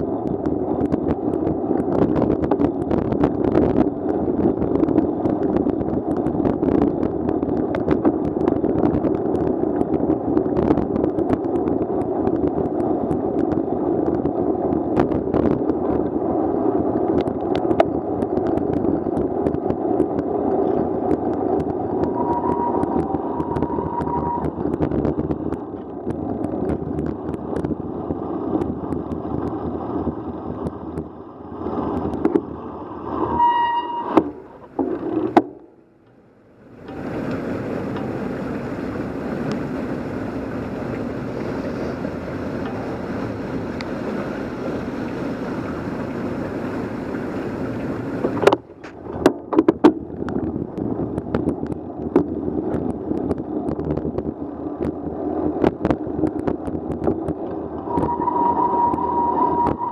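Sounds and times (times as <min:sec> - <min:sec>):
cars passing on wet street: 0:00.0 - 0:33.4, 0:34.2 - 0:59.9
wet road noise: 0:00.0 - 0:59.9
short squeal: 0:22.2 - 0:24.6, 0:33.2 - 0:34.4, 0:57.9 - 0:59.9.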